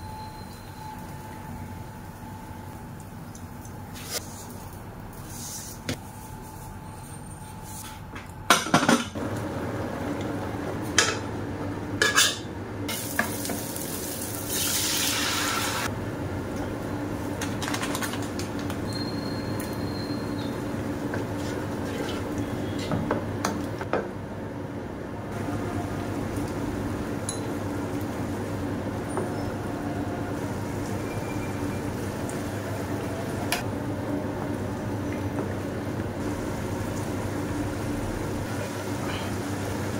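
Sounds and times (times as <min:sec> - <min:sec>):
metal pots and utensils clinking: 0:12.0 - 0:12.5.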